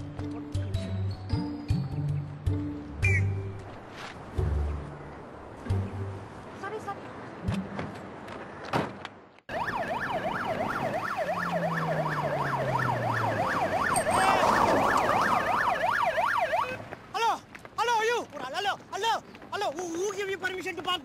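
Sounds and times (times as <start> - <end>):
fire engine siren yelping: 9.5 - 16.9.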